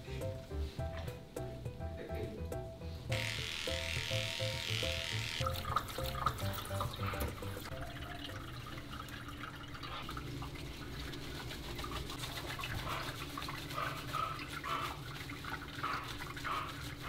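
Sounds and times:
wet soapy squishing: 10.2 - 17.0.

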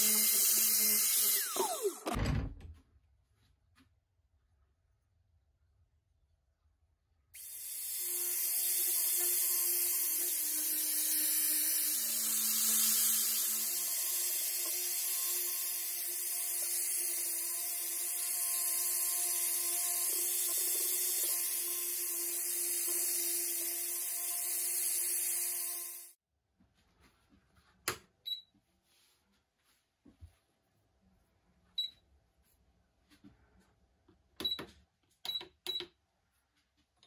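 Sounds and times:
power tool motor whine: 0.0 - 2.2, 7.4 - 26.2.

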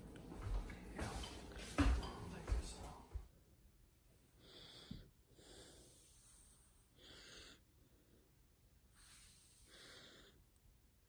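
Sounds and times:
faint breaths: 4.2 - 10.6.

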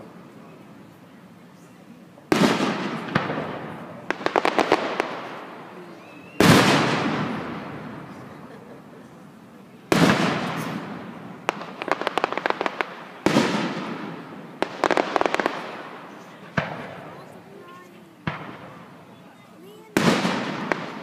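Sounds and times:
firework booms: 2.3 - 5.7, 6.4 - 8.5, 9.9 - 17.4, 18.2 - 19.0, 19.8 - 21.0.

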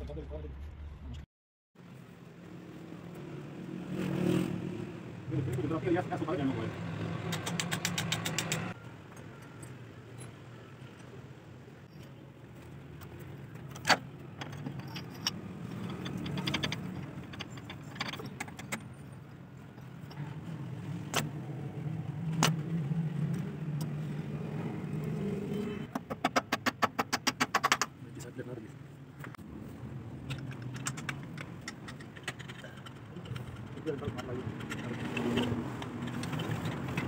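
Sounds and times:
hand tools clinking on metal: 13.7 - 18.9.

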